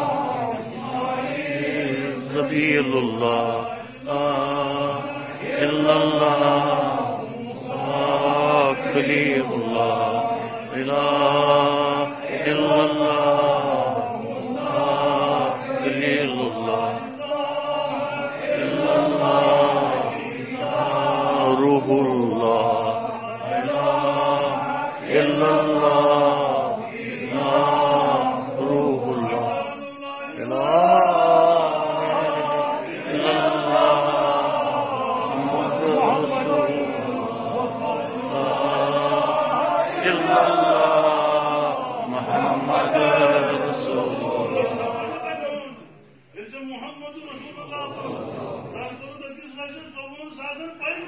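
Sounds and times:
man chanting melodic recitation: 0:01.8 - 0:13.6, 0:20.4 - 0:34.3.

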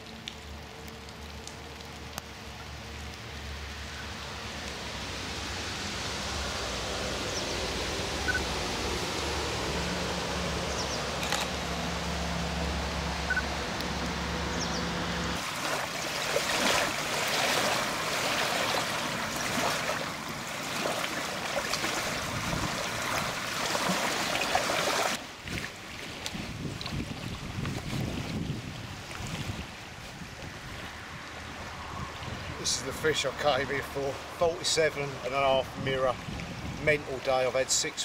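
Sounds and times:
water lapping on stony shore: 0:15.4 - 0:38.0.

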